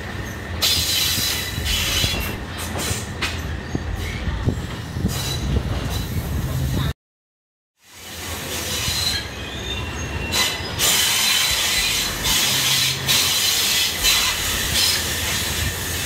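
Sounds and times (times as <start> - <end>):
train wheel and rail rumble: 0.0 - 7.0, 7.8 - 16.0
high wheel squeal: 0.2 - 3.0, 8.0 - 16.0.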